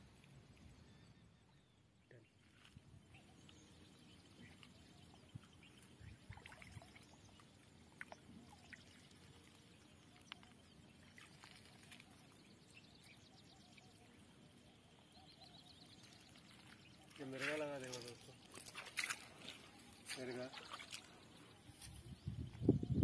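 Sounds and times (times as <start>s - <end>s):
light water splashes: 3.4s - 15.1s, 15.7s - 21.9s.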